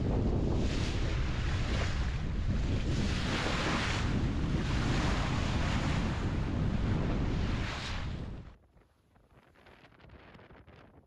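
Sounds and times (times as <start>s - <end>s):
water rushing along hull: 0.0s - 8.4s
wind buffeting microphone: 0.0s - 8.6s.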